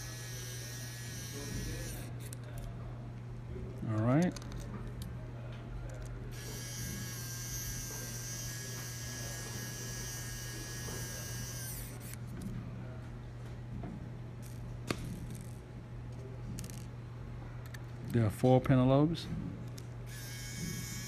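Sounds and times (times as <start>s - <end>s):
electric screwdriver whining: 20.1s - 21.0s.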